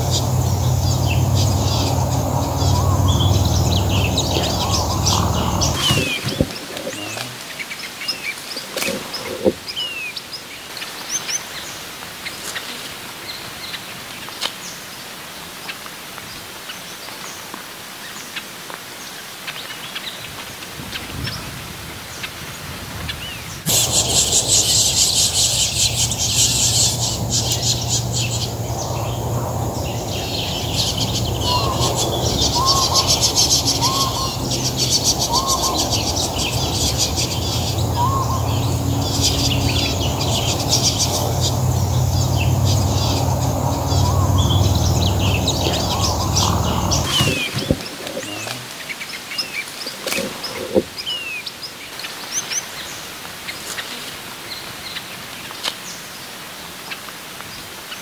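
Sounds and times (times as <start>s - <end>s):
low steady rumble: 0.0s - 6.6s, 23.7s - 48.2s
small birds chirping: 0.0s - 14.8s, 23.1s - 56.1s.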